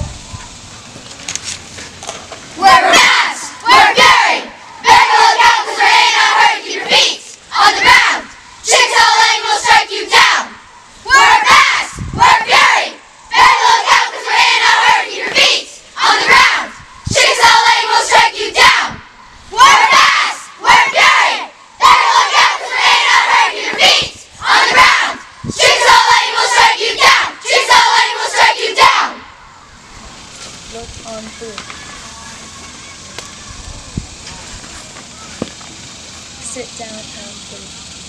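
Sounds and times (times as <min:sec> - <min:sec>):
girls chanting in unison: 0:02.6 - 0:29.3.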